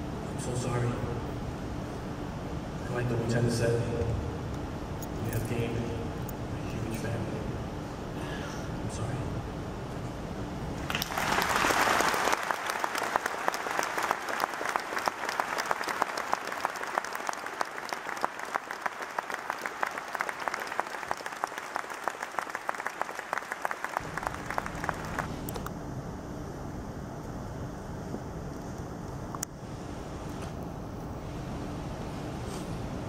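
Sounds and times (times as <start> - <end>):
large audience applauding: 10.8 - 25.3.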